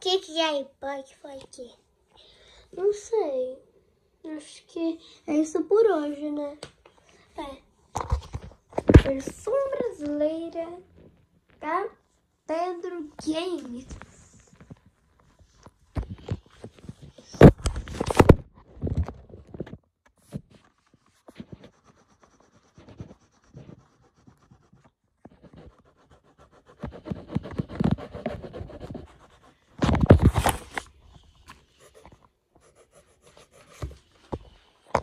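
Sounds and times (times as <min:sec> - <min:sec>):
fingers rubbing on microphone: 0:21.3 - 0:30.4.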